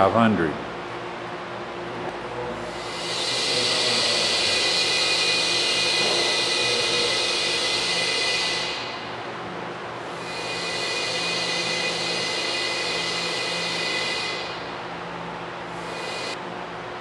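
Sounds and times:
compressed air hissing: 2.6s - 8.9s.

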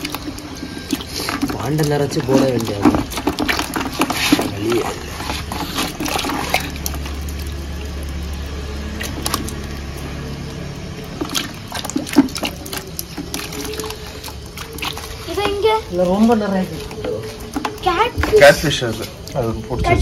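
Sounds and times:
water splashing and trickling: 0.0s - 20.0s.

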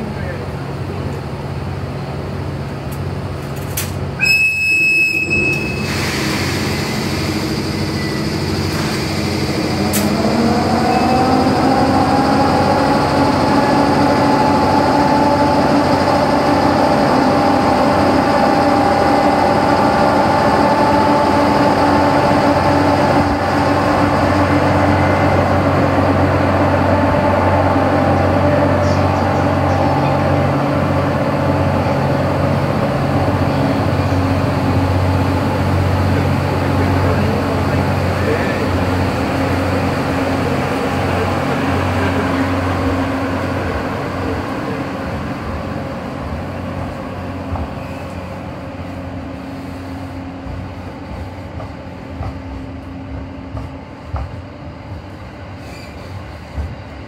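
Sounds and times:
train whistle blast: 4.2s - 6.0s
electric locomotive motor whine: 4.2s - 57.0s.

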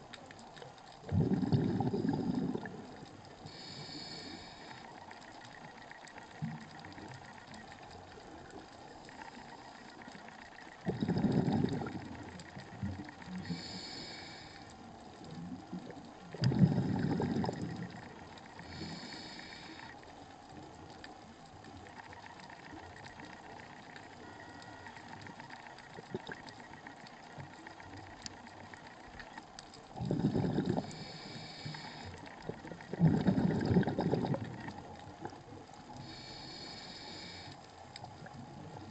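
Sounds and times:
exhaled bubbles rushing: 1.1s - 3.0s, 10.8s - 12.4s, 16.4s - 18.1s, 29.9s - 31.0s, 32.5s - 34.9s
hissing regulator inhalations: 3.4s - 5.0s, 13.4s - 14.8s, 16.4s - 20.0s, 30.1s - 34.3s, 36.0s - 37.6s.

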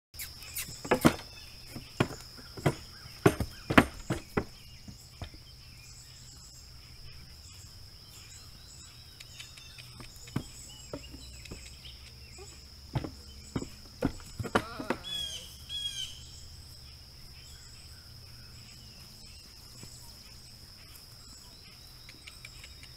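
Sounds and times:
hooves knocking on wooden boards: 0.8s - 5.4s, 10.0s - 11.7s, 12.9s - 15.3s.

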